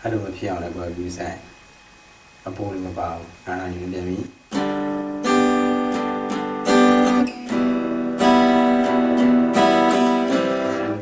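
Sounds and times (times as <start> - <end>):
acoustic guitar strumming chords: 4.5 - 11.0.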